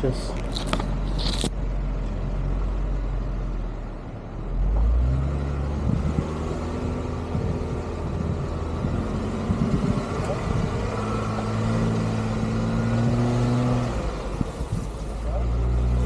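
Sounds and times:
road and wind noise: 0:00.0 - 0:16.0
vehicle engine running: 0:00.0 - 0:16.0.

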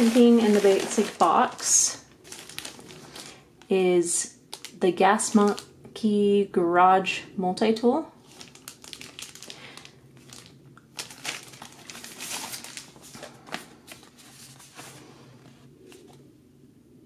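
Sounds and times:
plastic packaging crinkling: 0:00.0 - 0:03.7, 0:04.5 - 0:05.7, 0:08.2 - 0:15.0.

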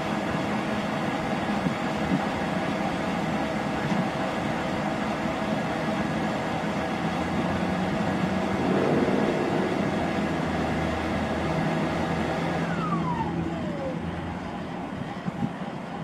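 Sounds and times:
low rotor and engine hum: 0:05.7 - 0:15.7
helicopter turbine whining: 0:07.2 - 0:13.6.

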